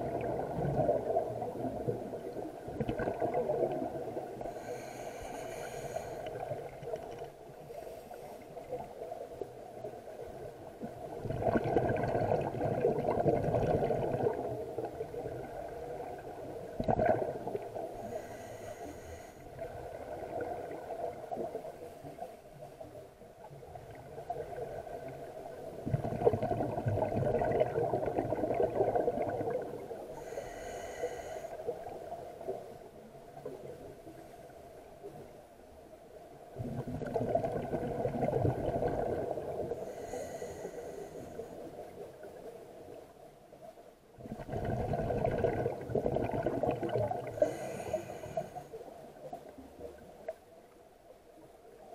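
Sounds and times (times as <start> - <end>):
exhaled air bubbling: 0.0 - 7.2, 10.8 - 21.7, 23.4 - 32.2, 36.5 - 41.0, 44.2 - 50.4
regulator inhale hiss: 4.4 - 6.7, 7.6 - 8.7, 18.0 - 19.6, 30.1 - 32.0, 39.7 - 41.8, 47.3 - 48.8.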